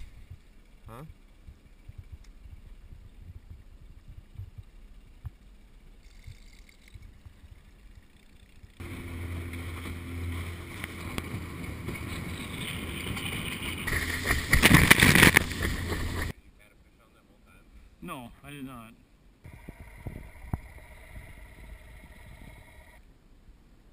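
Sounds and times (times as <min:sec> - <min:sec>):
faint low rumble: 0:00.0 - 0:18.4, 0:19.0 - 0:23.9
boat motor running: 0:08.0 - 0:16.3
water rushing along hull: 0:08.8 - 0:16.3.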